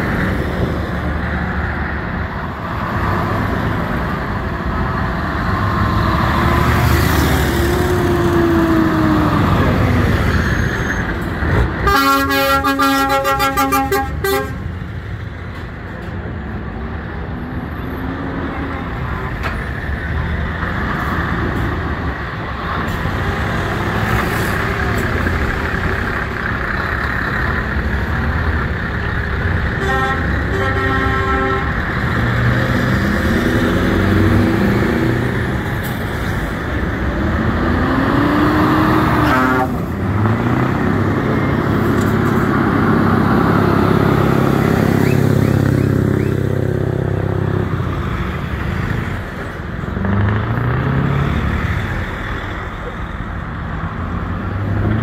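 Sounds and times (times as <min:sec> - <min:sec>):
truck engines revving: 0:00.0 - 0:55.0
truck horn: 0:11.8 - 0:14.7, 0:29.7 - 0:31.9, 0:39.0 - 0:39.9.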